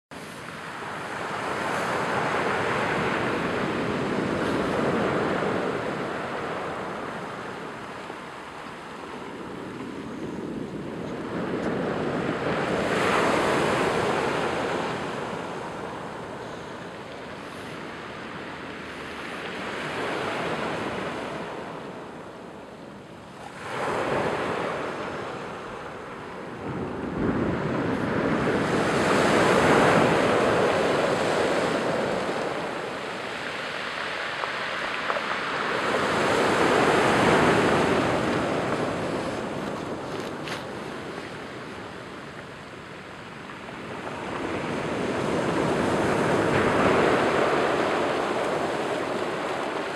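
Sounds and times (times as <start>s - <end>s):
surf breaking on pebble beach: 26.7s - 42.2s, 43.3s - 49.9s.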